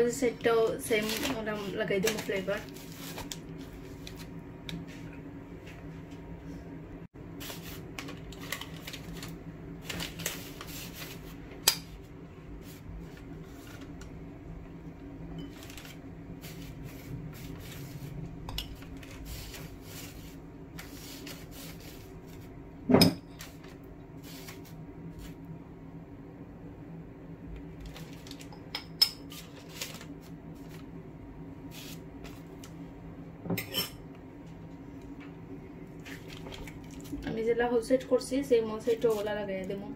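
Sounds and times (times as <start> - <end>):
low hum: 11.9 - 24.2.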